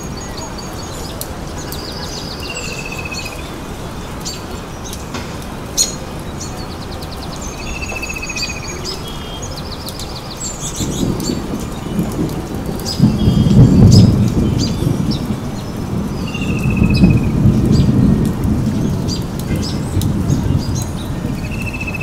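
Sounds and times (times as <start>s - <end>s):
birdsong chirps and trill: 0.0s - 22.0s.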